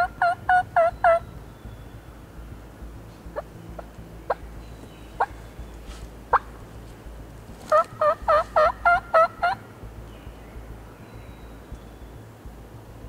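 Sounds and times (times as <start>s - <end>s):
turkey yelps: 0.0s - 1.2s, 7.7s - 9.6s
turkey clucks: 0.0s - 1.3s, 3.3s - 4.5s, 5.1s - 9.6s.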